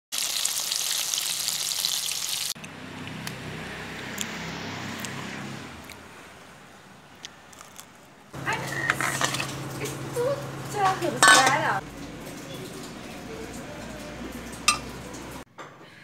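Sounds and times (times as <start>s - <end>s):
food deep-frying in oil: 0.1s - 2.6s, 8.4s - 15.4s.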